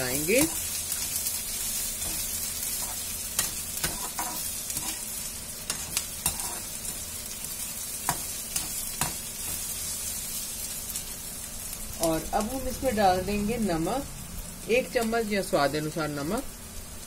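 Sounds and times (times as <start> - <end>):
onions sizzling in oil: 0.0 - 17.0
metal spatula scraping a pan: 1.9 - 7.0.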